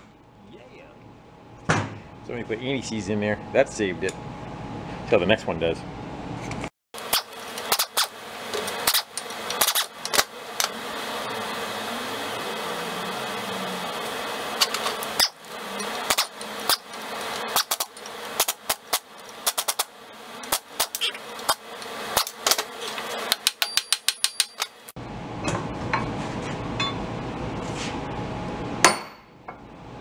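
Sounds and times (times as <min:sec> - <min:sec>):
pneumatic impact wrench: 0:07.0 - 0:10.8, 0:14.6 - 0:24.8.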